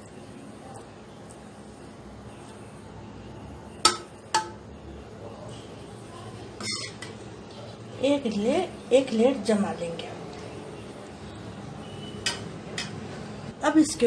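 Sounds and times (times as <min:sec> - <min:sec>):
metal spoon clinking on pot: 0:12.2 - 0:13.0.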